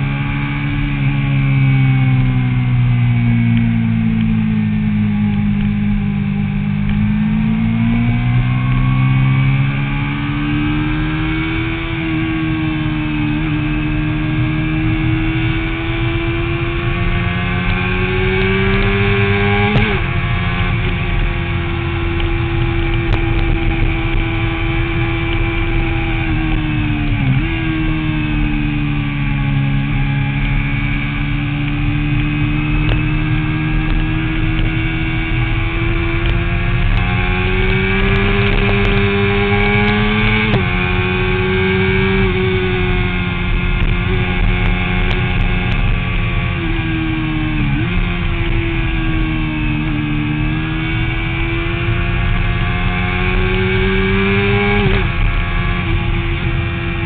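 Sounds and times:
motorcycle engine running hard: 0:00.0 - 0:57.0
wind noise: 0:00.0 - 0:57.0.

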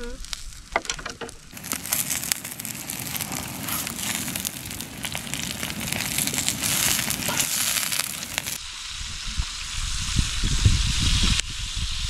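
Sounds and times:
campfire crackling: 0:00.0 - 0:10.3
vegetables sizzling in a skillet: 0:01.5 - 0:12.0.

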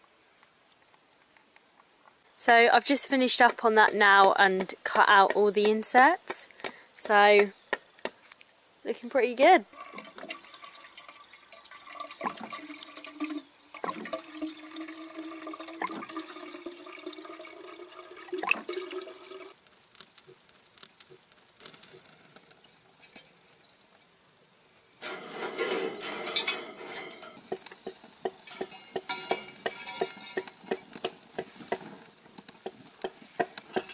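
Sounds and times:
kindling fire crackling: 0:07.3 - 0:33.9
water filling a metal kettle: 0:09.8 - 0:19.6.

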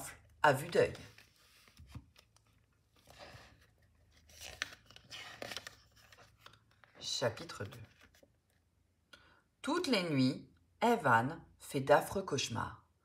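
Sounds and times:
book pages turning: 0:00.2 - 0:08.7.

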